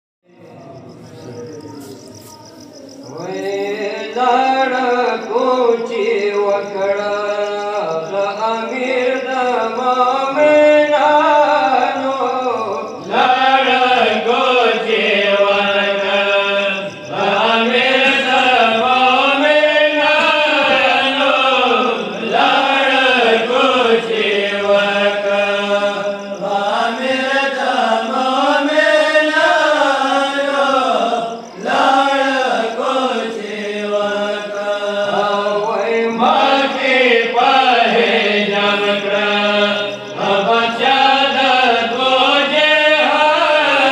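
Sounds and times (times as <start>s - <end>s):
person chanting a lament: 3.1s - 43.9s.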